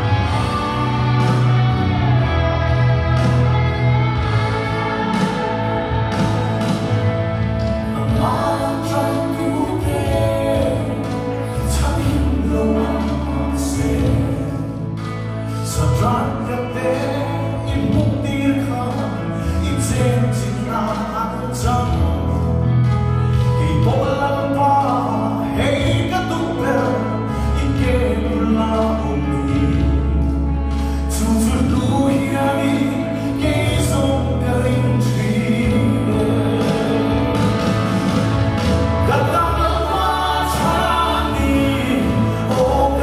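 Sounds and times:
instrumental accompaniment with bass: 0:00.0 - 0:43.0
man singing into a microphone: 0:07.8 - 0:37.6, 0:39.0 - 0:43.0.

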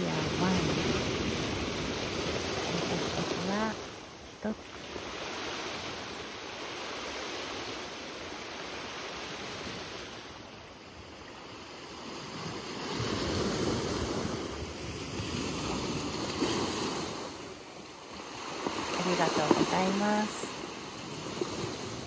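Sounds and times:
waves washing over stones: 0:00.0 - 0:10.4, 0:12.1 - 0:22.0.

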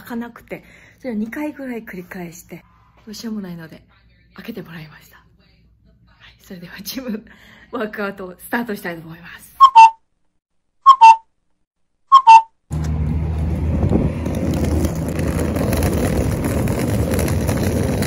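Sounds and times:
whistle-like two-note sound effect: 0:09.6 - 0:10.0, 0:10.8 - 0:11.2, 0:12.1 - 0:12.5
street noise: 0:12.1 - 0:18.0
wind rumble on microphone: 0:13.4 - 0:18.0.

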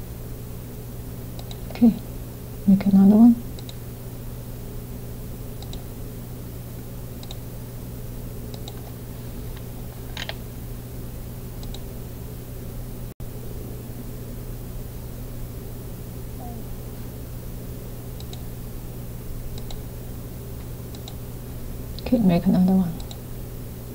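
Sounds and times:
low electrical hum and hiss: 0:00.0 - 0:23.9
computer mouse clicks: 0:01.4 - 0:01.8, 0:03.6 - 0:03.8, 0:05.6 - 0:05.9, 0:07.2 - 0:07.4, 0:08.5 - 0:10.4, 0:11.6 - 0:11.9, 0:18.2 - 0:18.4, 0:19.5 - 0:19.8, 0:20.9 - 0:21.2, 0:23.0 - 0:23.2.

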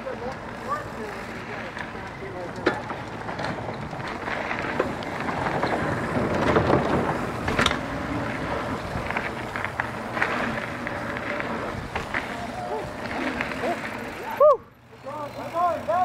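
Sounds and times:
bike clacking over bumps: 0:00.0 - 0:16.0
tyres rolling over dirt: 0:00.0 - 0:16.0
wind buffeting microphone: 0:03.0 - 0:14.2.

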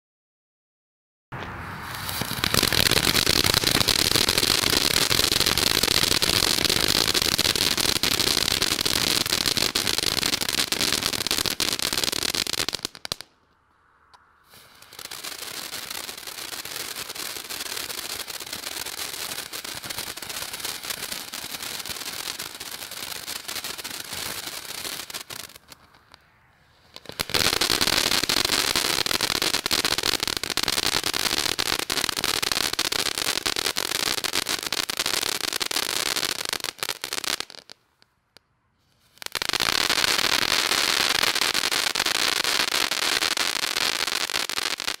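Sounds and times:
firework fountain crackling hiss: 0:01.8 - 0:13.3, 0:14.4 - 0:37.8, 0:38.9 - 0:45.0.

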